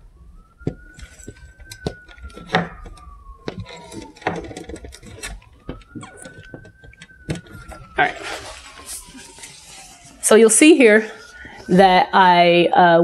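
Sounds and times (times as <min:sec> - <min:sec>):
siren wailing: 0:00.0 - 0:13.0
handling knocks and clicks: 0:00.6 - 0:08.0.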